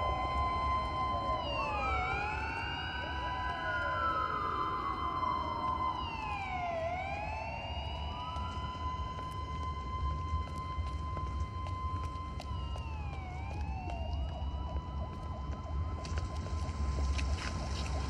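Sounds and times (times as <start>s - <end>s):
steady high tone: 0.0s - 11.8s
police sirens wailing: 0.0s - 18.0s.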